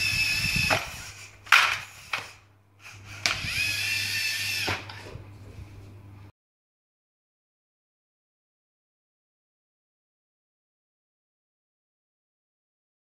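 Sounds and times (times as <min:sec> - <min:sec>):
electric motors whining: 0:00.0 - 0:05.3.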